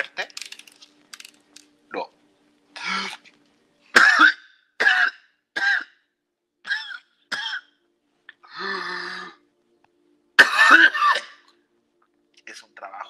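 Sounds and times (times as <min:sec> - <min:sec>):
person coughing: 0:04.0 - 0:05.9, 0:10.4 - 0:11.5.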